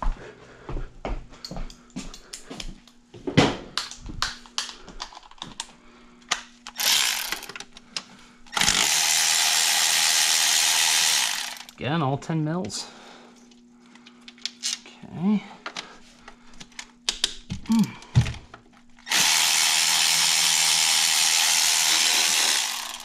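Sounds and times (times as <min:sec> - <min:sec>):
tools clicking and clinking: 0:04.5 - 0:05.7, 0:06.3 - 0:09.3
power ratchet running: 0:06.7 - 0:07.6, 0:08.5 - 0:11.8, 0:19.0 - 0:23.0.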